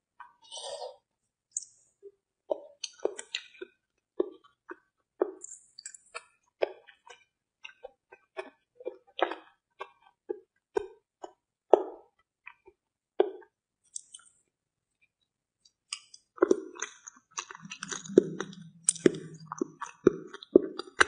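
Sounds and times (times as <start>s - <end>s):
person chewing wet food: 2.5s - 13.4s, 15.9s - 21.0s.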